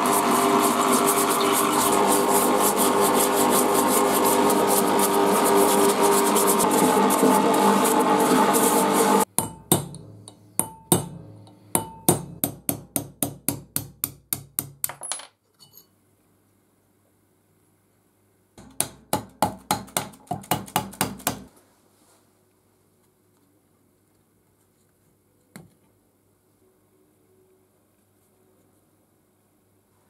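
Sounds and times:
hammer striking metal punch: 0:09.3 - 0:15.0, 0:18.6 - 0:21.5.

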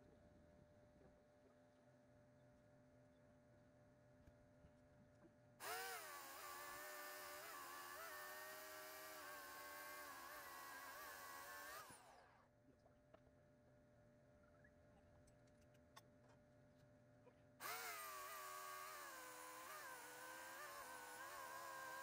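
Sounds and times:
electric chainsaw whining: 0:05.6 - 0:12.3, 0:17.6 - 0:22.0.

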